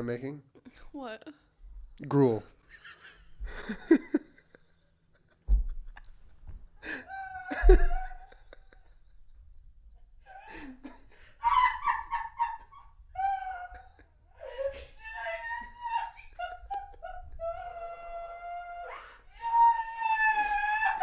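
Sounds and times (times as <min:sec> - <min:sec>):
man and woman laughing: 0:02.6 - 0:09.8, 0:10.4 - 0:18.2.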